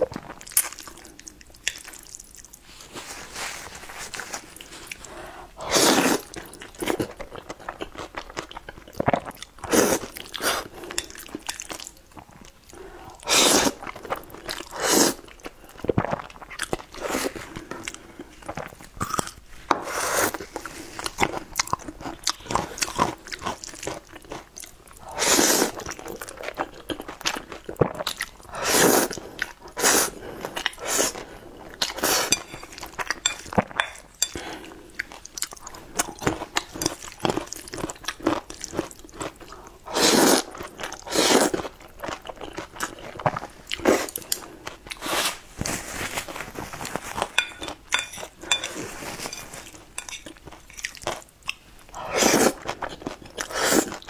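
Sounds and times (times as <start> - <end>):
person slurping noodles: 4.9 - 6.4, 13.1 - 13.9, 14.6 - 15.3, 25.0 - 26.0, 27.8 - 31.2, 39.9 - 41.7, 52.0 - 52.7, 53.4 - 54.0
chewing and mouth smacks: 49.6 - 51.7.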